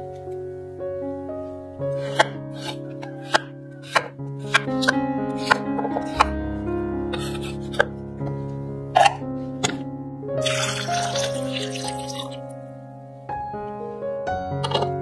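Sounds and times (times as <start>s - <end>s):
background music: 0.0s - 15.0s
knife chopping potato on wooden board: 2.0s - 6.3s.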